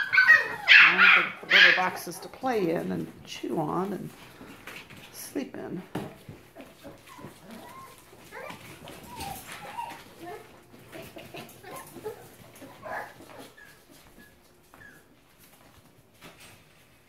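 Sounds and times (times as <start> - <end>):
puppies whimpering and yipping: 0.0 - 2.3, 6.5 - 15.2
puppies scuffling: 0.0 - 17.0.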